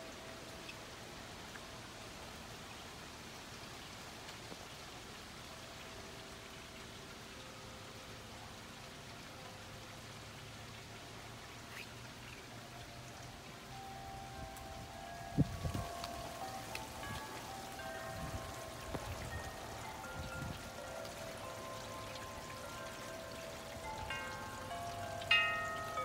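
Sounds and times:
rain falling and dripping: 0.0 - 26.0
metal wind chimes ringing: 12.8 - 26.0.

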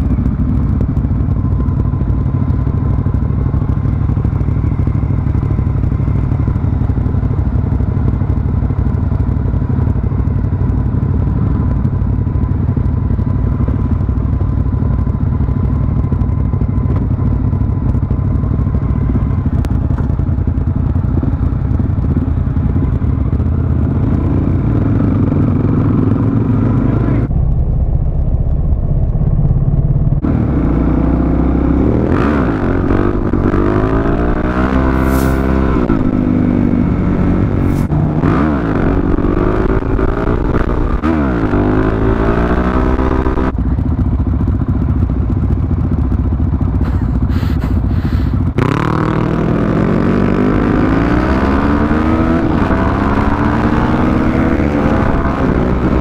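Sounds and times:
motorcycle engine idling: 0.0 - 31.8, 41.8 - 48.6
other motorcycles idling: 0.0 - 38.1, 41.8 - 48.9.

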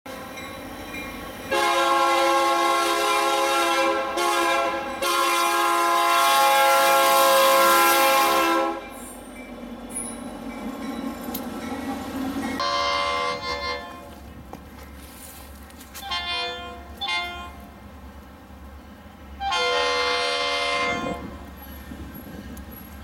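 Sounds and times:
passing train rumbling: 0.1 - 23.0
locomotive air horn blasts: 1.5 - 9.0, 12.6 - 14.2, 16.0 - 17.7, 19.4 - 21.4.

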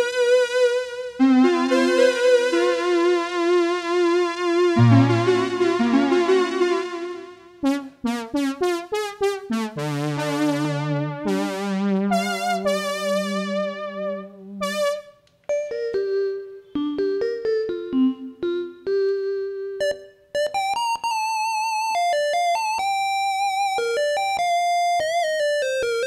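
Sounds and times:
synthesizer chords and notes: 4.8 - 7.3.

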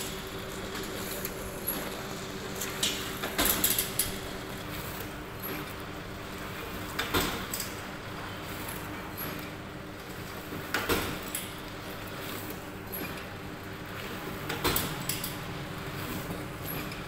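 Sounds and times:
machine motor hum: 0.0 - 6.9.

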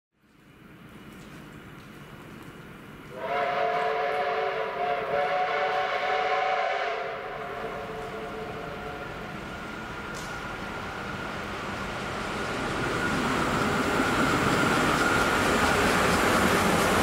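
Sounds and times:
low train rumble: 0.4 - 17.0
train whistle chord: 3.1 - 9.7.

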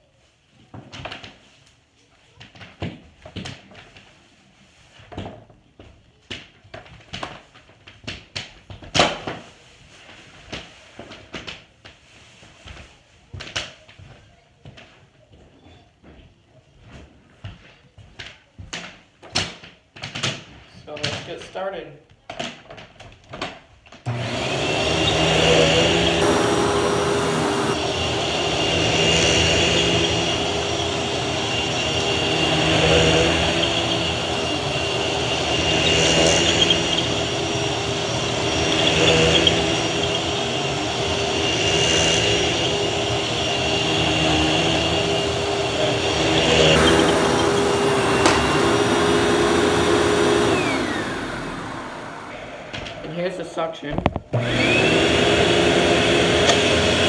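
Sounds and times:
vacuum cleaner running on carpet: 24.1 - 53.4, 54.3 - 57.0.

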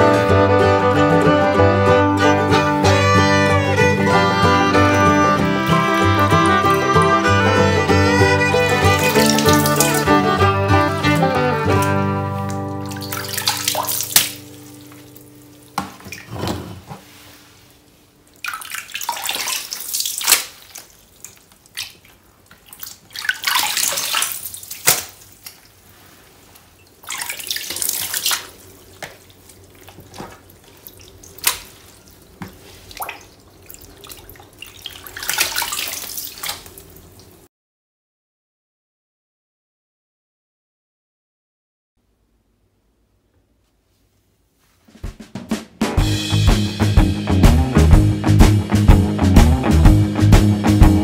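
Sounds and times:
water splashing in plastic case: 4.0 - 7.8, 8.4 - 16.7, 18.3 - 25.9, 26.8 - 37.4.

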